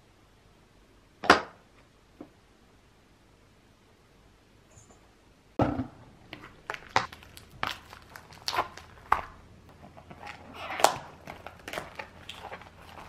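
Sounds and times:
plastic cling wrap crackling: 6.2 - 13.0.

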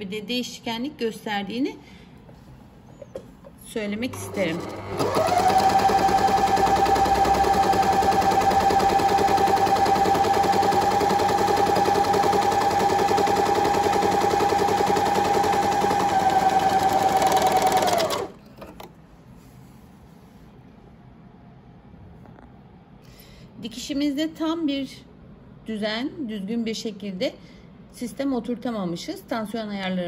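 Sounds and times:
overlocker sewing machine running: 4.1 - 18.8.

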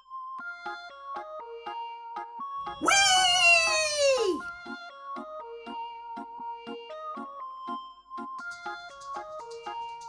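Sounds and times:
high vocal cry: 2.8 - 4.4.

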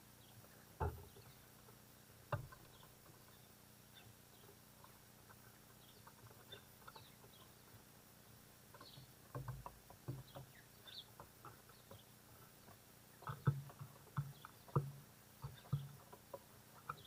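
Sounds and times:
small birds chirping: 0.0 - 17.0
bird bill knocking on wood: 0.8 - 1.2, 8.8 - 12.1, 13.2 - 17.0.

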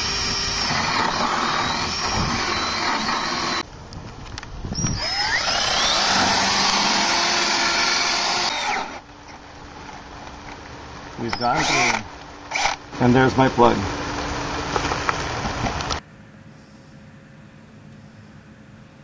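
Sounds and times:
drill with hole saw boring wood: 0.0 - 3.6, 4.8 - 9.1, 11.3 - 12.8.

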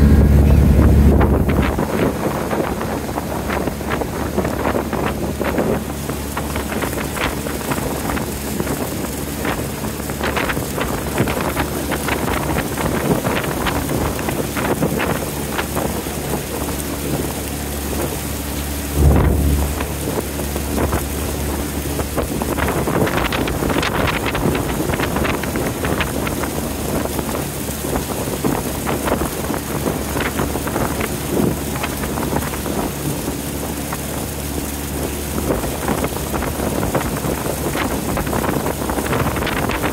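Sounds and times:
boat engine drone: 0.0 - 39.9
water splashing along hull: 0.0 - 39.9
wind buffeting microphone: 0.0 - 39.9
loud thump: 19.0 - 20.2.

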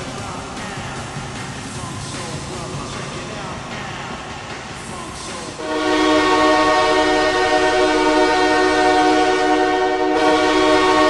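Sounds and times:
multi-tone air horn: 5.6 - 11.0.

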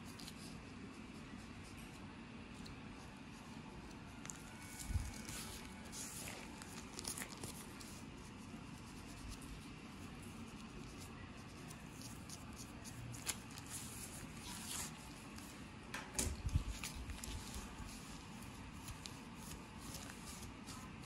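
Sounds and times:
comb scratching through hair: 4.0 - 15.6, 16.5 - 21.0.

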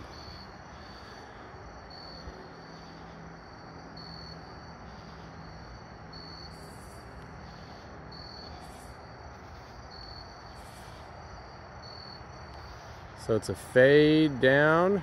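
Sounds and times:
insect pulsing trill: 0.0 - 14.9
high buzzing insect call: 0.0 - 15.0.

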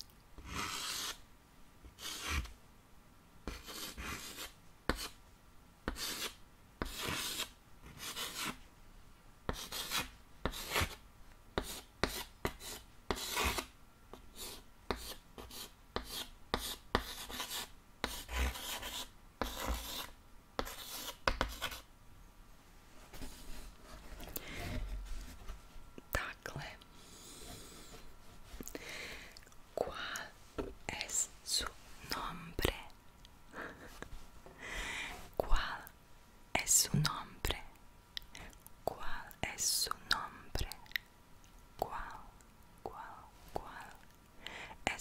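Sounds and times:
chalk scratching on chalkboard: 0.4 - 1.2, 2.0 - 2.5, 3.5 - 5.2, 5.9 - 8.6, 9.5 - 11.0, 11.6 - 21.9.

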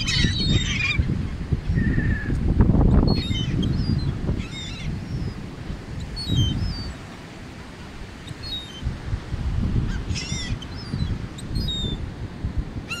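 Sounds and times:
gulls calling: 0.0 - 2.4, 3.0 - 7.2, 9.8 - 12.0
wind: 0.0 - 13.0.

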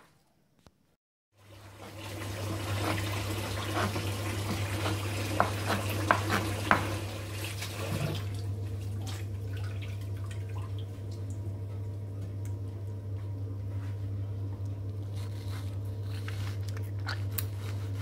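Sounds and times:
knife cutting raw chicken: 2.8 - 6.9
knife knocking on cutting board: 5.4 - 6.9.

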